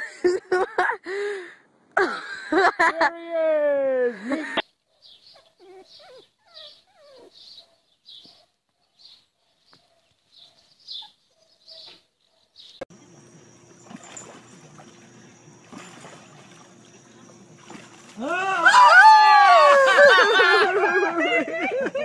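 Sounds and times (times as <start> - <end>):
puppy yipping and whimpering: 5.4 - 7.8
faint steady hum: 12.9 - 18.2.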